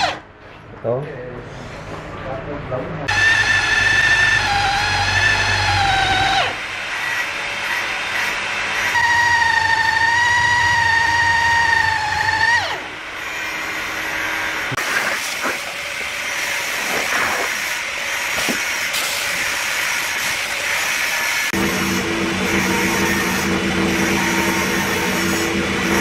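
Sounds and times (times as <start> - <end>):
electric drill whining into wood: 3.1 - 14.8
power tool hissing on wood: 14.8 - 26.0.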